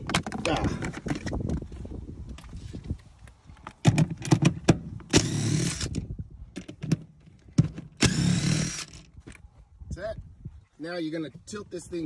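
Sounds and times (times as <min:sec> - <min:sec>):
cordless drill running: 0:05.1 - 0:06.0, 0:08.0 - 0:09.0.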